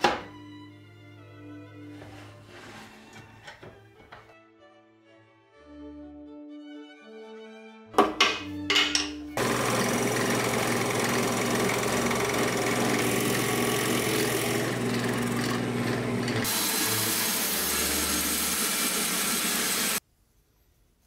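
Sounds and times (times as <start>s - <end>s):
drill bit cutting wood: 9.4s - 20.0s
drill press motor hum: 9.4s - 20.0s.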